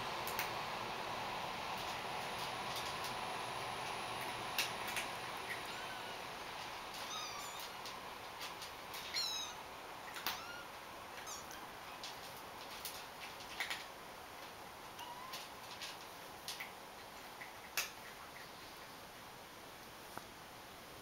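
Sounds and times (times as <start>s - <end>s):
kittens mewing: 7.0s - 7.9s, 9.0s - 11.6s.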